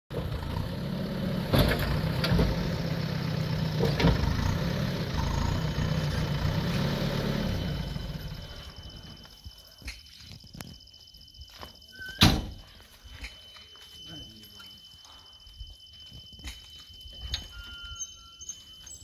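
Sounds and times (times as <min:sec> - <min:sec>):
diesel engine idling: 0:00.1 - 0:09.3.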